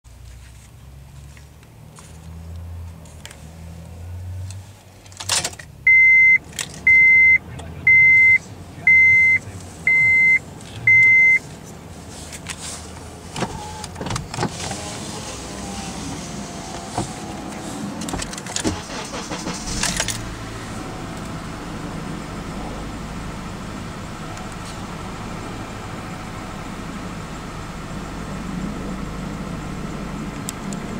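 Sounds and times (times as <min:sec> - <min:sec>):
dashboard warning chime beeping: 0:05.9 - 0:11.4
car engine idling: 0:15.3 - 0:30.9
starter motor cranking: 0:18.6 - 0:20.2.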